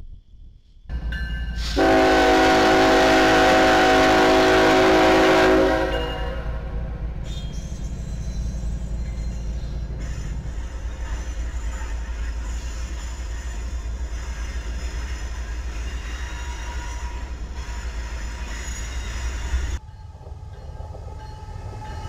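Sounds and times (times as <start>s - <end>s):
train rumbling past: 0.9s - 22.0s
locomotive air horn blast: 1.6s - 6.8s.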